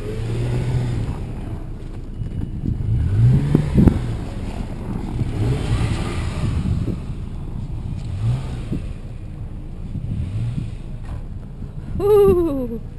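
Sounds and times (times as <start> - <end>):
engine revving in bursts: 2.8 - 7.2, 8.1 - 9.0.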